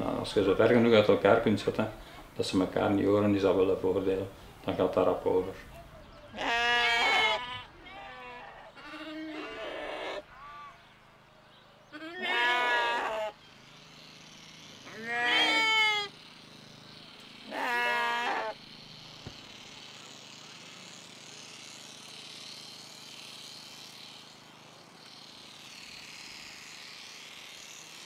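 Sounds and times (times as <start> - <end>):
sheep bleating: 6.3 - 10.8, 11.9 - 13.4, 14.8 - 16.1, 17.4 - 18.6.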